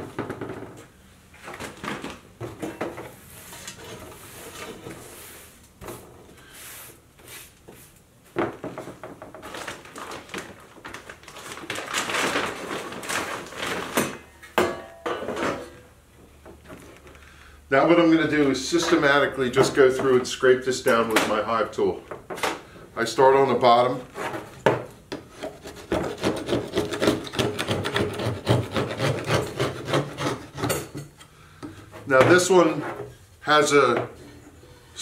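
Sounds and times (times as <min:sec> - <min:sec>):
brush sweeping debris on table: 0:03.3 - 0:08.0.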